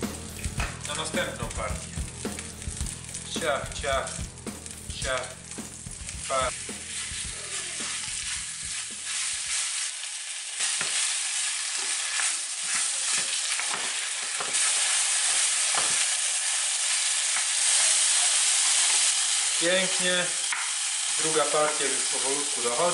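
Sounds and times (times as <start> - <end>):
meat sizzling in a frying pan: 0.0 - 22.9
wooden spatula scraping a pan: 6.5 - 9.9.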